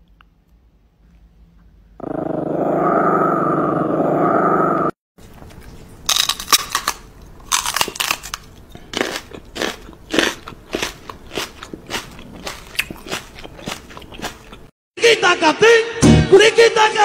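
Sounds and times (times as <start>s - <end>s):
crisp crunching: 5.5s - 14.6s.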